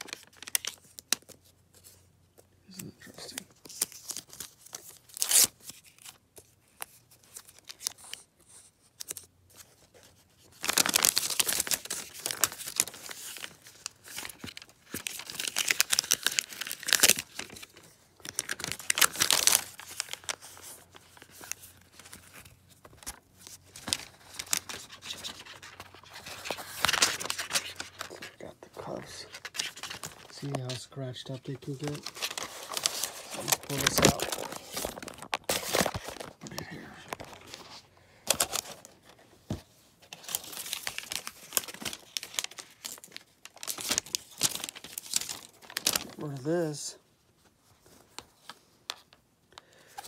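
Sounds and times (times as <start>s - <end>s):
packaging torn and crinkled: 0.0s - 1.4s, 3.6s - 6.2s, 10.4s - 30.8s, 31.4s - 39.0s, 40.1s - 46.8s.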